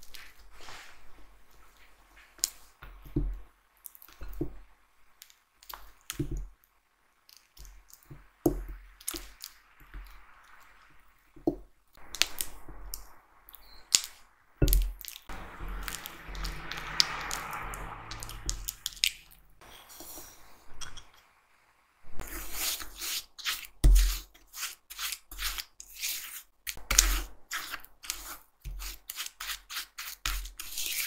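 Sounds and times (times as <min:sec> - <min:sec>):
spatula smearing butter in glass bowl: 0:22.2 - 0:31.0.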